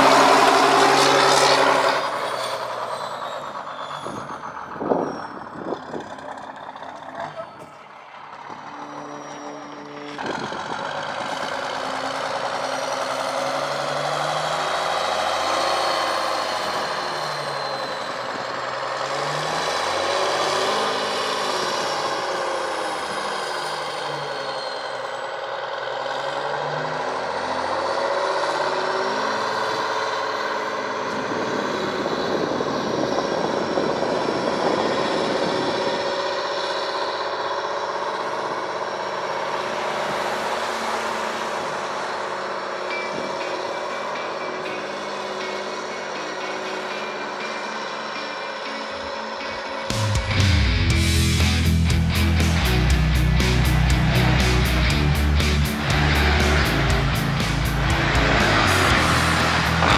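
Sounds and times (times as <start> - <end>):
diesel truck engine revving: 0.0 - 59.9
turbo whine: 41.6 - 59.9.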